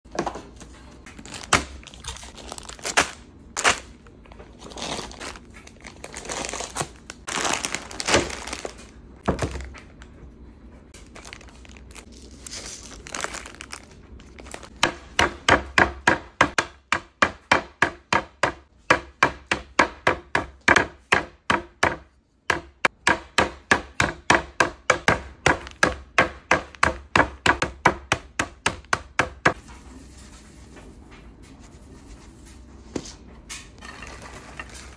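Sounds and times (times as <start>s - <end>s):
plastic packages crinkling: 1.1s - 10.1s, 11.0s - 14.8s.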